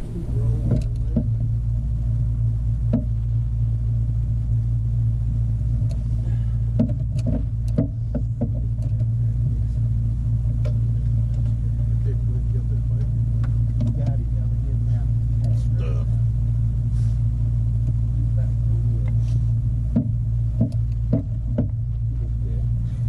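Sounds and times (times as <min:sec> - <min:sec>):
low motor hum: 0:00.0 - 0:23.0
sharp knocks and clicks: 0:00.6 - 0:01.5, 0:02.8 - 0:03.4, 0:06.7 - 0:09.6, 0:10.4 - 0:11.6, 0:12.9 - 0:14.2, 0:19.8 - 0:22.4.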